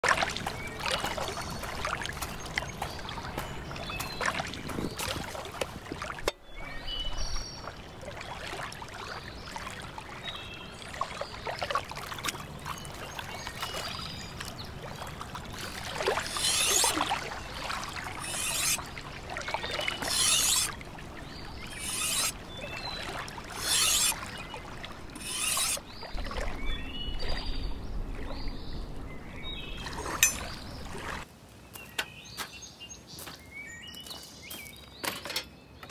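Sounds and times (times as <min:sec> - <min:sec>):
knife scraping on whetstone: 0:16.2 - 0:17.1, 0:18.2 - 0:18.9, 0:19.9 - 0:20.8, 0:21.6 - 0:22.4, 0:23.5 - 0:24.2, 0:25.2 - 0:25.8
footsteps on pebbles: 0:33.2 - 0:34.9.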